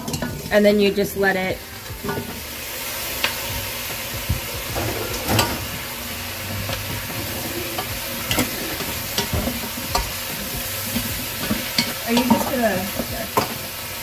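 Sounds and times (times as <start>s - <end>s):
vegetables sizzling in a pot: 0.0s - 14.0s
spatula knocking and scraping pot: 6.6s - 13.7s.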